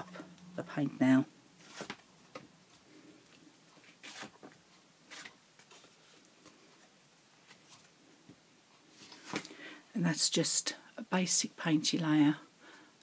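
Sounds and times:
paper rustling on plate: 0:03.8 - 0:04.5, 0:05.1 - 0:06.2.

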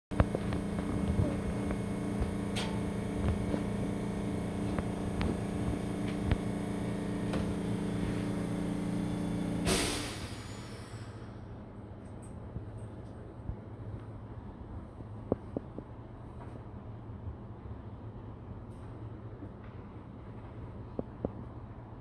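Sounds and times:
tram car hum: 0:00.1 - 0:22.0
short loud hiss: 0:09.6 - 0:11.3.

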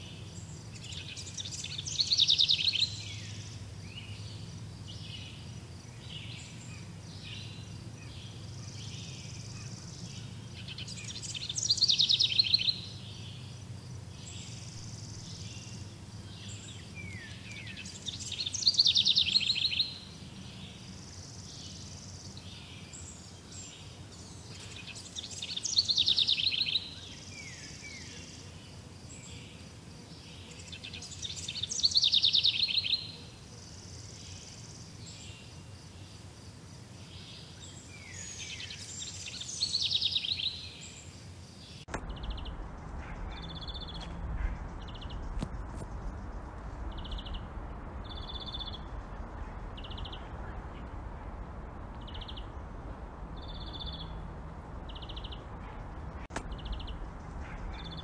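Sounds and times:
faint low hum: 0:33.5 - 0:58.0.

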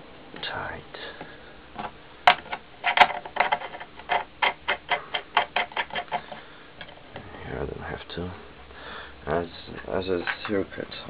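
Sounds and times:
nut tightening clicks: 0:02.3 - 0:06.3.

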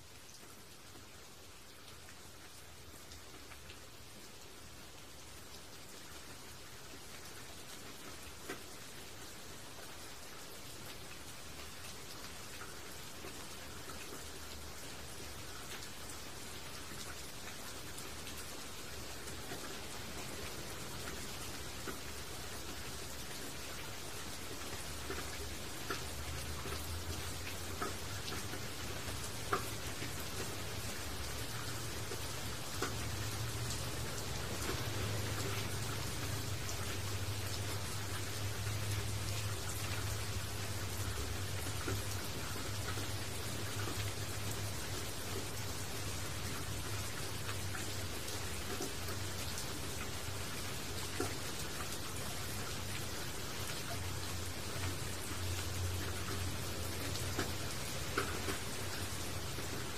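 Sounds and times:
rain falling on leaves: 0:00.0 - 0:59.9.

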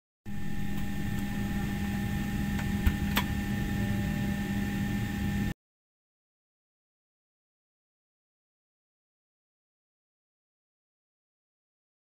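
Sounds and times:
airliner cabin hum: 0:00.3 - 0:05.5
faint whining tones: 0:00.3 - 0:05.5.

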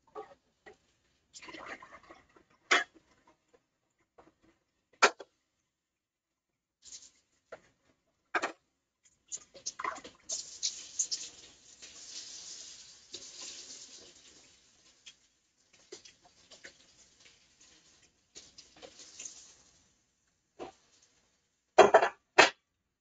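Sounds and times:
kitchen tap running: 0:09.1 - 0:21.4.

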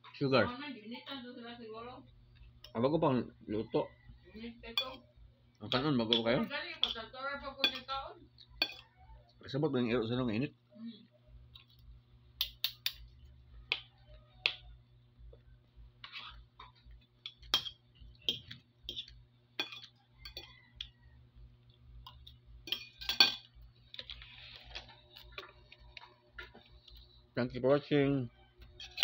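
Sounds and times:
faint steady hum: 0:00.0 - 0:29.0
cutlery clinking on a plate: 0:04.8 - 0:05.1, 0:05.7 - 0:07.0, 0:07.6 - 0:07.9, 0:08.6 - 0:08.9, 0:17.3 - 0:20.9, 0:22.0 - 0:23.5, 0:28.8 - 0:29.0.

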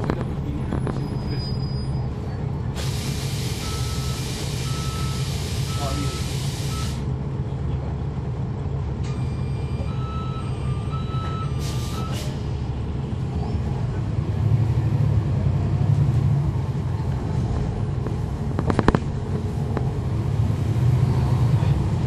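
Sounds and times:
bus diesel engine humming: 0:00.0 - 0:22.0
air hiss: 0:02.8 - 0:04.7.

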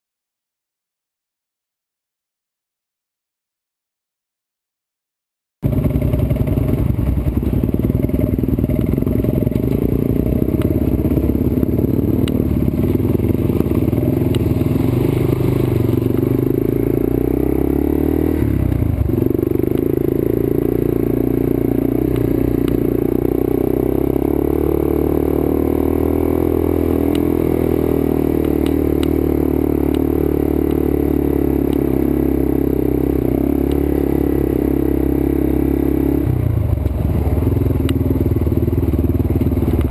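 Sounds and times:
motorbike engine revving: 0:05.6 - 0:39.9
clicks and clatter from bike: 0:39.3 - 0:39.9.

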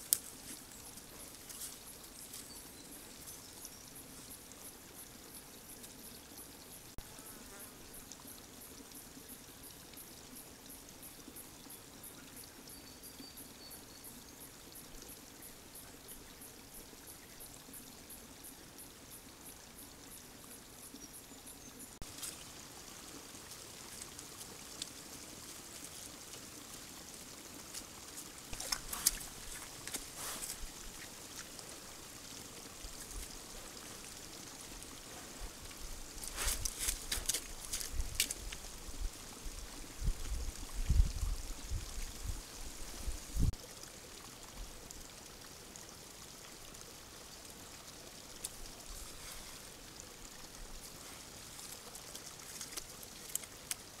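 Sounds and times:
hiss: 0:30.1 - 0:30.7.

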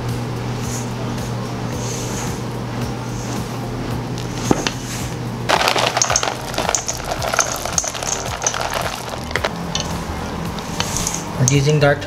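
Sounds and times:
steady low hum: 0:00.0 - 0:12.0
spatula folding cookie dough: 0:10.6 - 0:11.6.

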